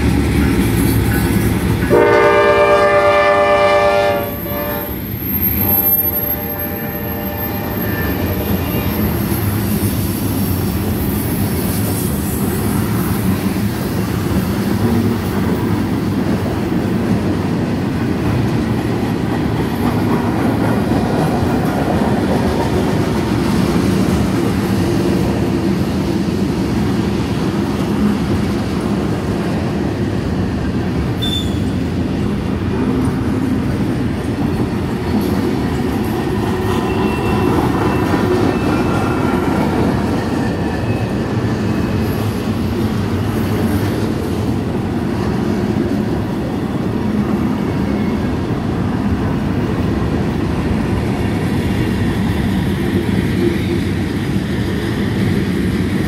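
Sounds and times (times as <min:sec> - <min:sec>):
freight train rolling past: 0:00.0 - 0:56.0.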